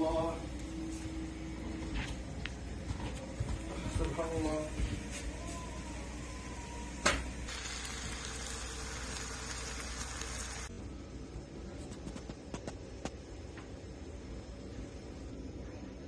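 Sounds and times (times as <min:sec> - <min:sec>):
paste sizzling in oil: 0:07.5 - 0:10.7.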